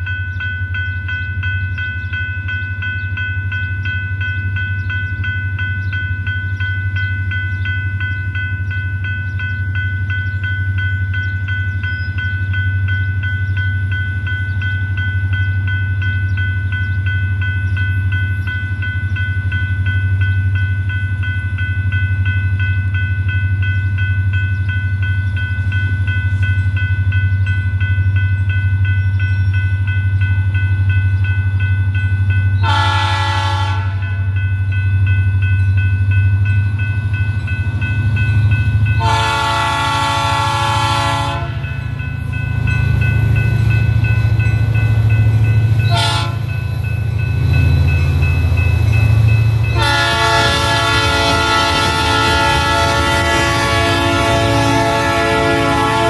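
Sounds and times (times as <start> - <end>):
diesel locomotive rumbling: 0.0 - 56.0
train horn blasts: 32.6 - 34.2, 39.0 - 41.7, 45.8 - 46.5, 49.7 - 56.0.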